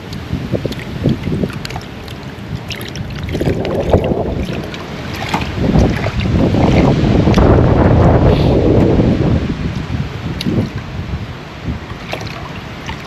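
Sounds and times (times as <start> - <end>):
small splashes and drips: 0.0 - 7.4, 11.8 - 13.0
water sloshing in a pan: 0.0 - 7.4, 11.8 - 13.0.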